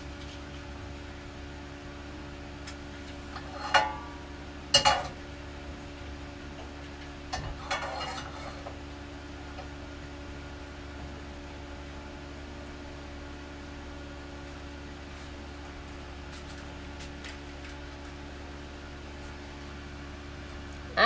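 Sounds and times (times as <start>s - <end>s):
steady low hum: 0.0s - 21.0s
pots and utensils clanking: 3.3s - 5.2s, 7.3s - 8.8s.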